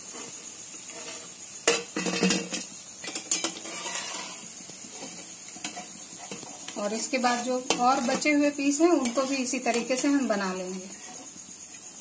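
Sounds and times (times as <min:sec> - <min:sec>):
hot oil sizzling: 0:00.0 - 0:12.0
metal spoon clinking and scraping: 0:03.0 - 0:04.4, 0:09.0 - 0:10.1.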